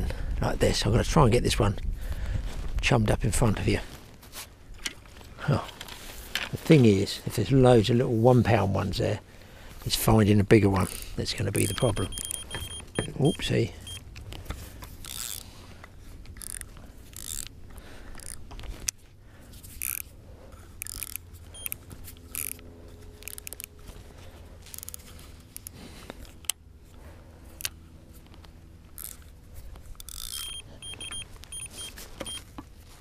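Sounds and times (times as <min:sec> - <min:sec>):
bite alarm beeping: 0:11.6 - 0:14.0, 0:21.5 - 0:21.8, 0:30.3 - 0:32.4.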